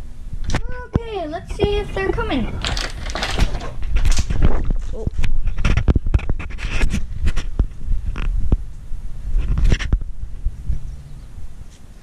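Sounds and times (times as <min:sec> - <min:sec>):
rumble: 0:00.0 - 0:12.0
rubbing and scraping on microphone: 0:01.4 - 0:11.0.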